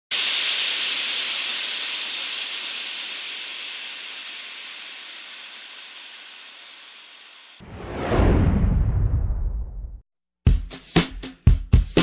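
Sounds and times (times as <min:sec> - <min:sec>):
steam hissing: 0:00.1 - 0:07.6.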